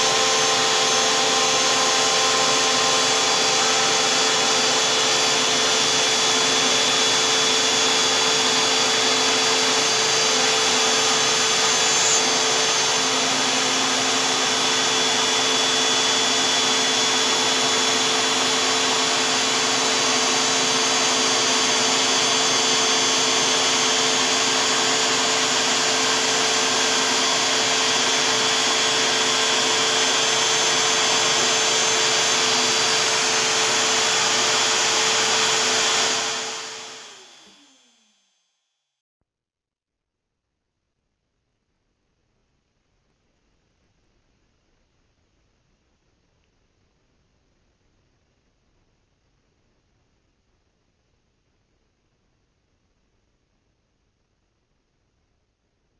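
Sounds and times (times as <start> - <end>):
router whining: 0.0 - 38.6.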